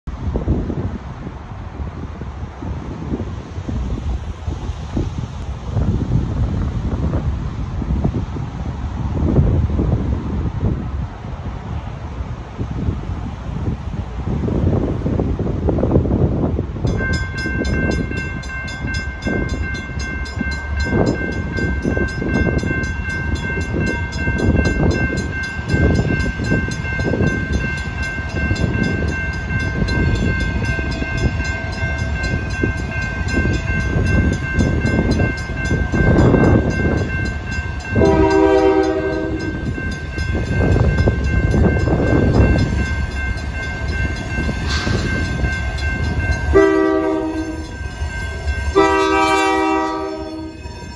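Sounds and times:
wind rumbling on microphone: 0.0 - 50.9
railroad crossing bells ringing: 14.6 - 50.9
locomotive horn blast: 38.0 - 39.6, 46.5 - 50.9.

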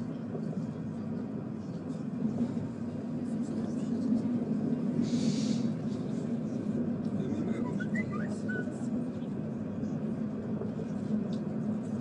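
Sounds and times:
tram rumbling: 0.0 - 12.0.

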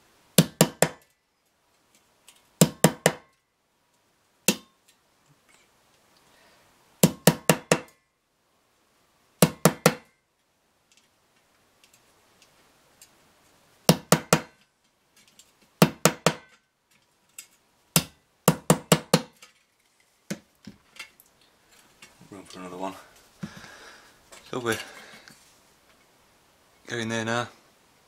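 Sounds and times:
small hammer tapping pin through metal: 4.5 - 4.8, 13.9 - 14.6.

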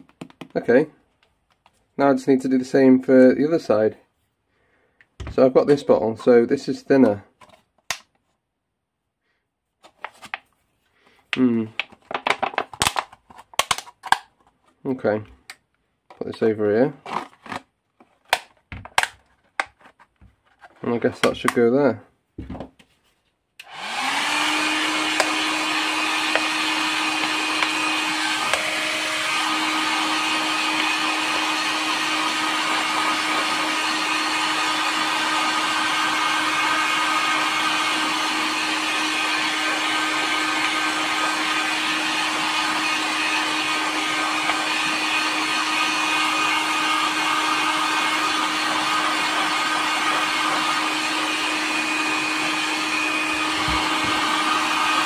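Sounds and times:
heat gun fan humming: 23.6 - 55.0.

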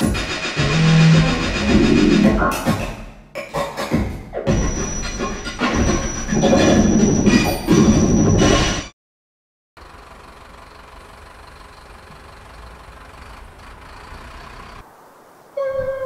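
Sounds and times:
tone sliding down in pitch: 15.6 - 16.0.

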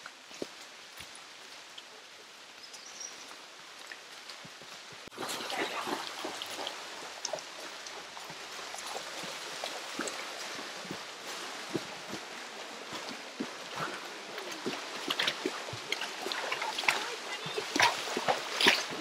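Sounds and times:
horses splashing through water: 0.0 - 19.0
stream rushing: 0.0 - 19.0.

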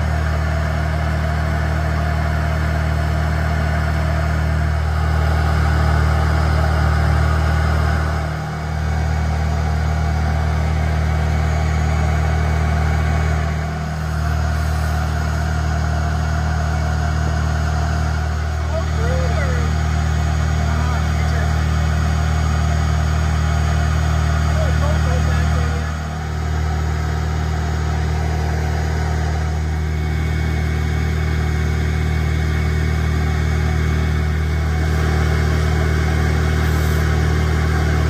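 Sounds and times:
low drone: 34.1 - 38.0.

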